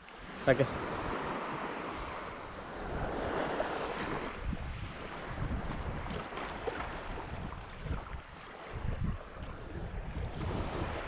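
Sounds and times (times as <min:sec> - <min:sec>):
small waves washing on sand: 0:00.0 - 0:11.0
wind rumbling on microphone: 0:00.0 - 0:11.0.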